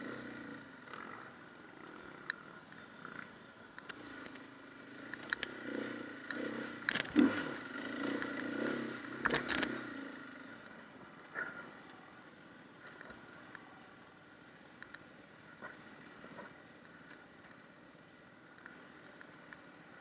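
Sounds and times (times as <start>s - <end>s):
motorcycle engine surging: 0.0s - 14.0s.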